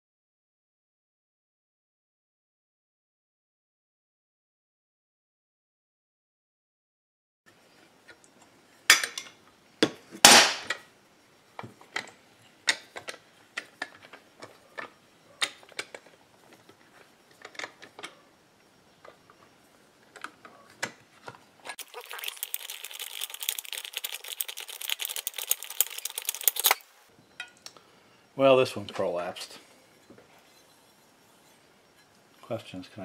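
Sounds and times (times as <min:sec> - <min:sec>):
fast ratchet clicks: 0:22.6 - 0:26.8
metal tool clicks and clinks: 0:25.2 - 0:26.8.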